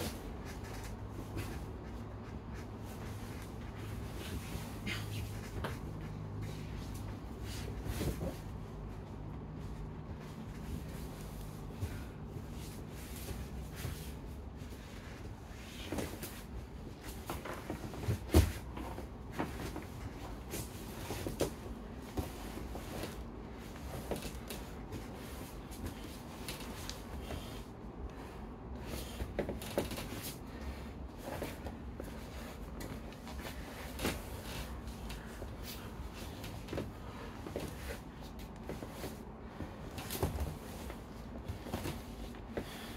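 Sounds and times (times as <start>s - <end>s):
bodies thumping on foam mats: 15.1s - 27.7s, 31.2s - 42.9s.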